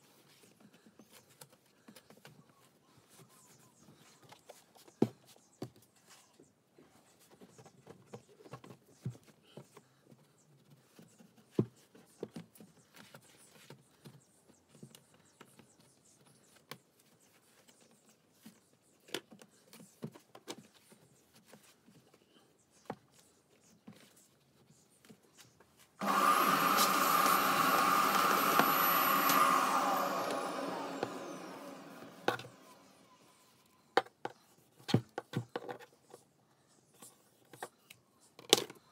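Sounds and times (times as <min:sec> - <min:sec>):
vacuum cleaner running: 0:26.0 - 0:33.3.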